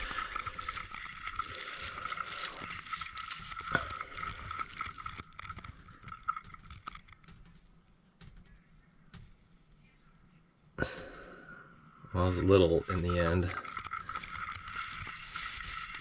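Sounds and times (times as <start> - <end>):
thin steady whine: 8.5 - 16.0.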